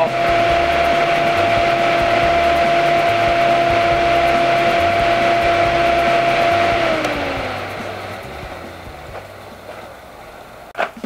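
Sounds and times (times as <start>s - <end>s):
electric cooling fan humming: 0.0s - 11.0s.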